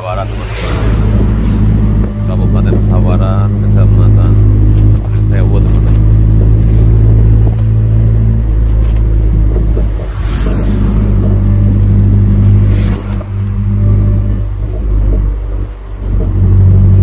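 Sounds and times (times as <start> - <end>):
brief whooshes: 0.0 - 2.5, 9.8 - 14.5
road and wind noise: 0.0 - 17.0
vehicle engine humming: 0.0 - 17.0.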